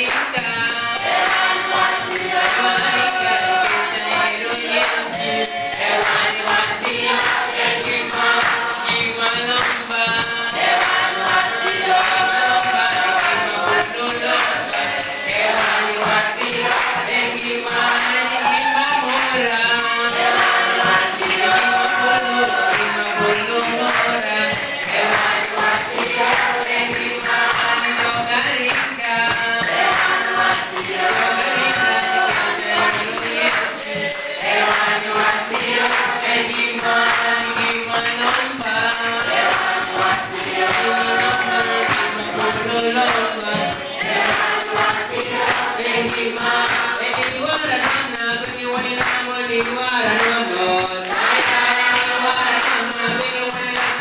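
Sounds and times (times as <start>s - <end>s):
congregation singing in unison: 0.0s - 54.0s
steady percussion beat: 0.0s - 54.0s.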